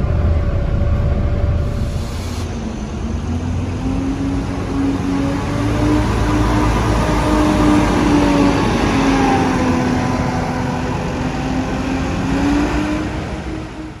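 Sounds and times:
bus diesel engine pulling away: 0:00.0 - 0:14.0.

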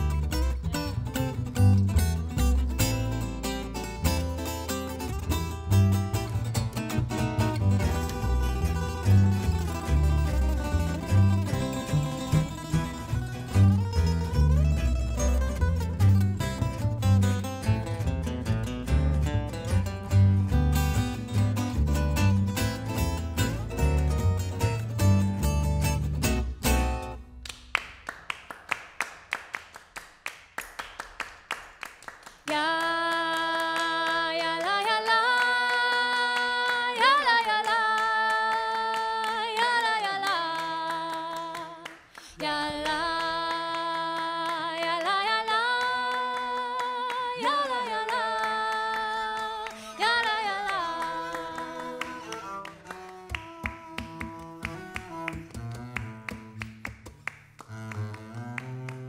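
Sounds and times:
hand claps steady beat: 0:27.3 - 0:34.0, 0:48.0 - 0:59.0.

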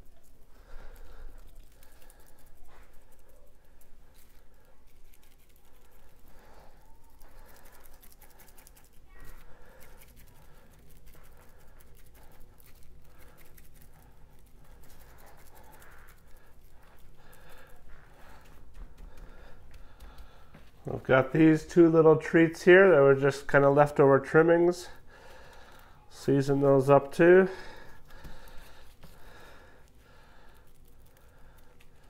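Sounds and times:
seasoning shaker rattling: 0:00.0 - 0:17.6
heavy breathing: 0:00.3 - 0:22.0, 0:24.6 - 0:32.0.

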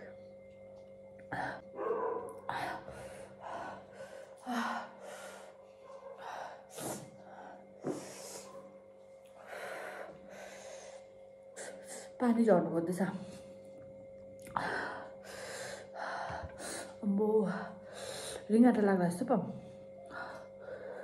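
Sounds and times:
woman breathing heavily: 0:01.2 - 0:08.7, 0:09.3 - 0:12.2, 0:14.4 - 0:18.5, 0:19.7 - 0:21.0.

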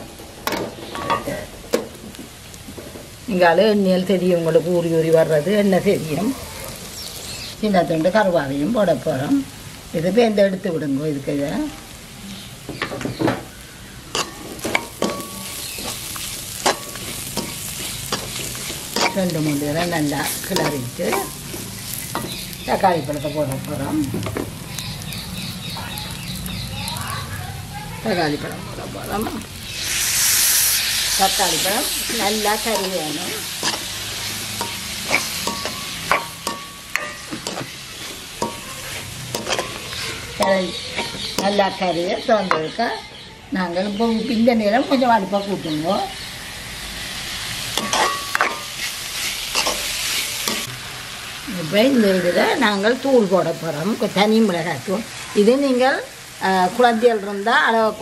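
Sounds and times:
onions sizzling in oil: 0:00.0 - 0:58.0
spatula scraping metal pan: 0:14.2 - 0:22.5.

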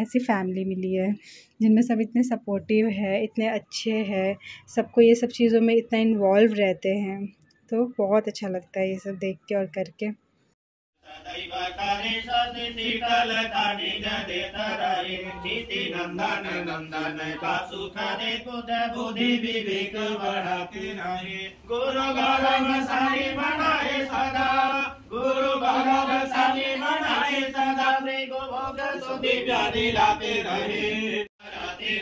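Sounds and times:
person chanting a mantra: 0:11.0 - 0:32.0.

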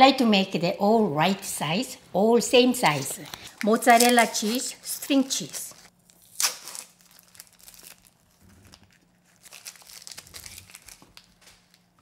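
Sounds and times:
plastic wrappers crinkling: 0:02.8 - 0:12.0.

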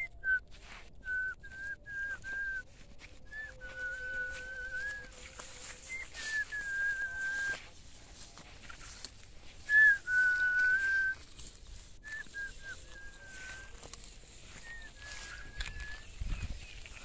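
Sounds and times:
person whistling long notes: 0:00.0 - 0:02.7, 0:03.3 - 0:05.2, 0:05.8 - 0:07.6, 0:09.6 - 0:11.2, 0:12.0 - 0:13.8, 0:14.4 - 0:16.6.

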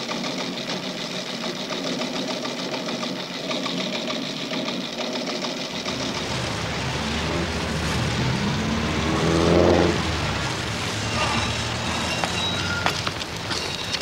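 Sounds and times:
fast mechanical clatter: 0:00.0 - 0:08.0, 0:10.5 - 0:14.0
car engine driving past: 0:05.8 - 0:13.5.

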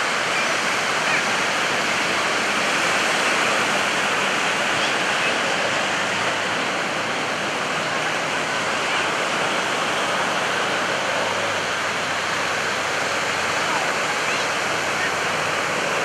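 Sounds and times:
rushing wind and surf: 0:00.0 - 0:16.0.

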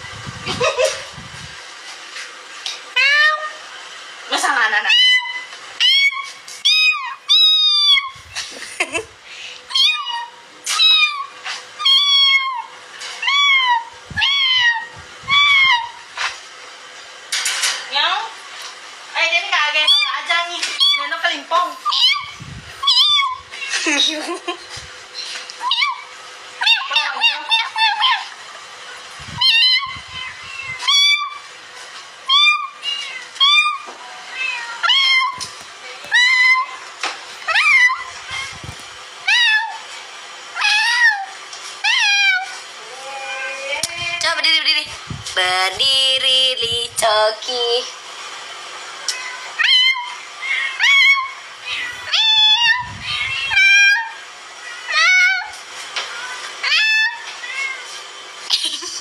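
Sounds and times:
cat meowing: 0:09.7 - 0:16.0, 0:21.8 - 0:23.7, 0:29.4 - 0:31.4, 0:32.3 - 0:35.5, 0:37.4 - 0:39.8, 0:40.6 - 0:43.8, 0:49.0 - 0:55.5, 0:56.2 - 0:57.8.

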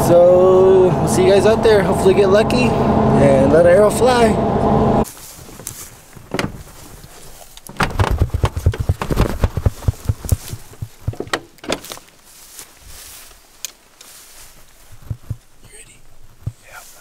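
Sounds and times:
truck door knocks and clicks: 0:06.2 - 0:06.7, 0:07.7 - 0:11.9, 0:15.0 - 0:15.4.

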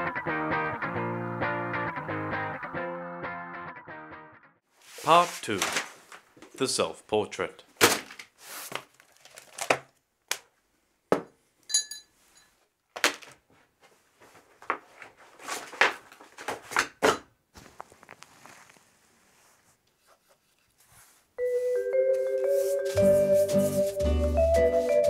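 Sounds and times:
paper and supplies knocking and rustling: 0:05.0 - 0:06.6, 0:07.8 - 0:10.4, 0:12.9 - 0:13.6, 0:14.2 - 0:18.2
ringing clink: 0:11.7 - 0:12.5.

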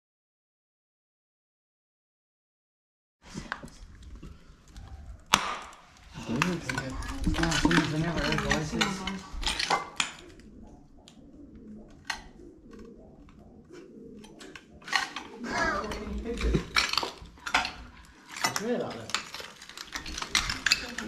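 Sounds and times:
person speaking: 0:06.1 - 0:09.5, 0:15.3 - 0:21.0
footsteps crunching on broken tiles: 0:15.8 - 0:21.0.

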